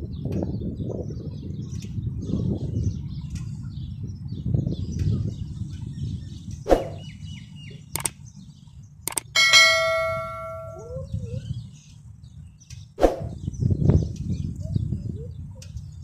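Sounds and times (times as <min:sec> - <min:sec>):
wind rumble on microphone: 0:00.0 - 0:16.0
mouse clicks: 0:08.0 - 0:08.2, 0:09.1 - 0:09.3
bell ding: 0:09.3 - 0:11.0.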